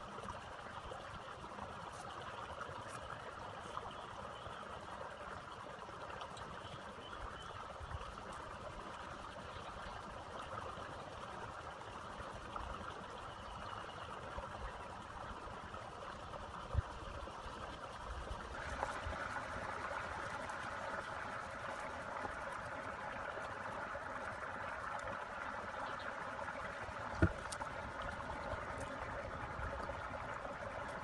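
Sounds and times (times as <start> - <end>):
stream trickling: 0.0 - 31.0
soft knocks of bamboo strips: 27.1 - 27.7
low thump: 27.2 - 27.4.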